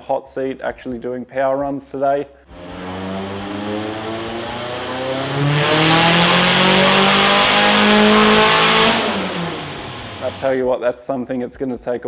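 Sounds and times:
engine revving on dyno: 0:02.5 - 0:10.6.

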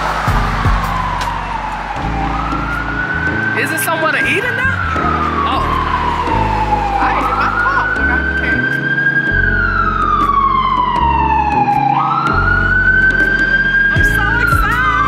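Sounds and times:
emergency vehicle siren wailing: 0:00.0 - 0:15.0.

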